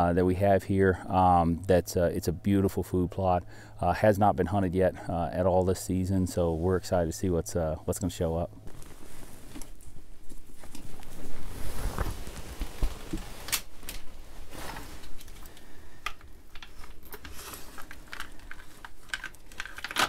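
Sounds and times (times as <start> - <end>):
clothing rustling: 8.6 - 20.0
sharp clicks and knocks of gear: 15.0 - 20.0.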